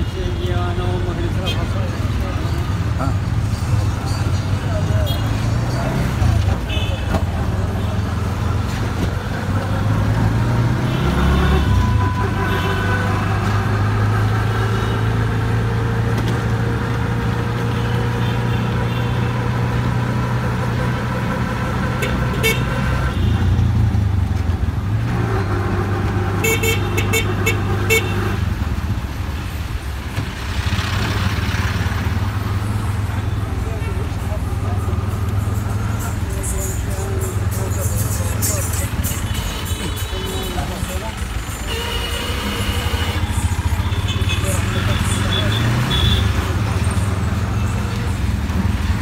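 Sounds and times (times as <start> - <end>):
auto-rickshaw engine running: 0.0 - 49.0
vehicle horns honking: 10.7 - 13.7, 22.0 - 23.6, 26.4 - 28.5, 35.5 - 46.6.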